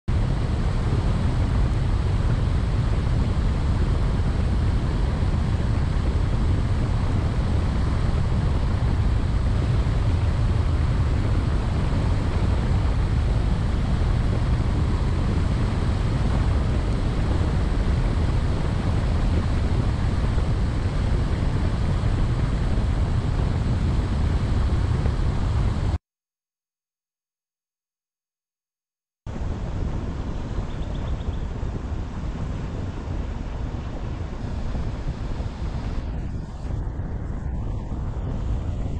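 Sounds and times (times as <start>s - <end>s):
car driving on paved road: 0.1s - 26.0s.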